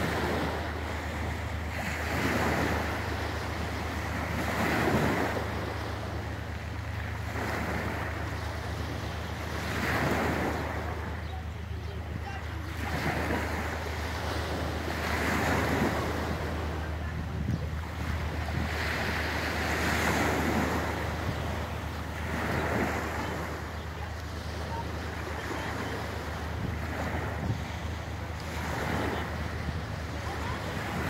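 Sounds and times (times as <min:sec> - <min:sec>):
waves washing onto pebble beach: 0:00.0 - 0:06.3
wind buffeting microphone: 0:00.0 - 0:31.0.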